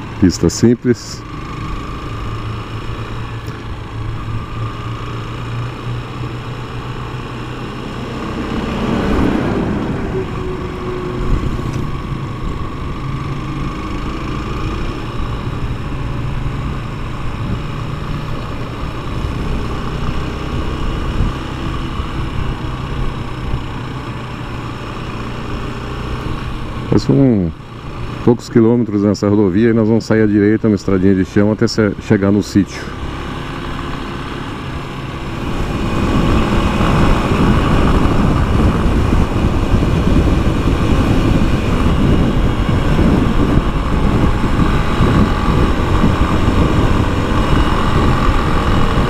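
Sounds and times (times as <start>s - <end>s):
motorcycle engine running: 0.0s - 49.0s
loud rushing sound: 7.8s - 12.8s.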